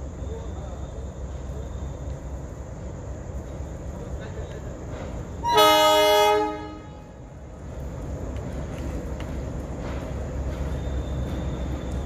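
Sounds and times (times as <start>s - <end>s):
locomotive engine rumbling: 0.0s - 12.0s
locomotive horn blast: 5.4s - 7.3s.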